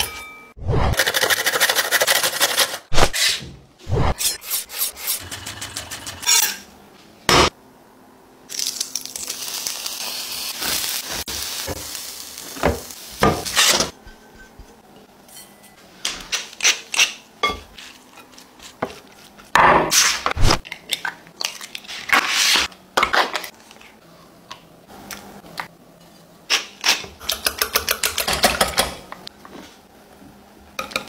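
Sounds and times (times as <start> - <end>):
carrot sizzling in frying pan: 8.5 - 13.8.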